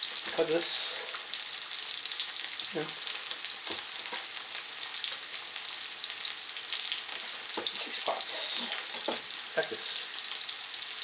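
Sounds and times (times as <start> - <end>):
vegetables sizzling in oil: 0.0 - 11.0
knife knocking on cutting board: 9.0 - 9.3.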